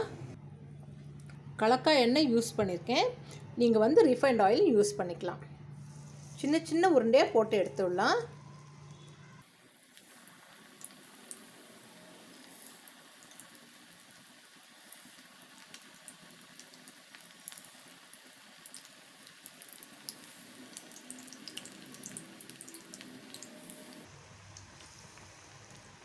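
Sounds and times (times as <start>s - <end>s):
batter deep-frying in hot oil: 8.4s - 26.0s
oil crackling and popping: 9.0s - 26.0s.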